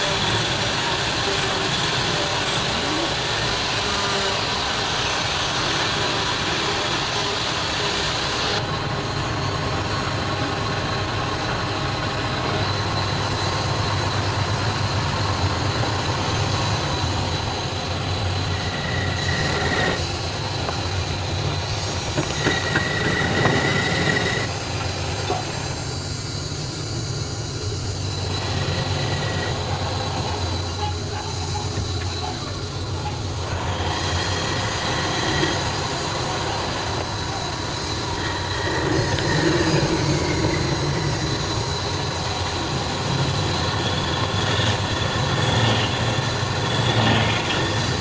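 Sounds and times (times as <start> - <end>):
high squeals: 0.0 - 48.0
wood lathe running: 0.0 - 48.0.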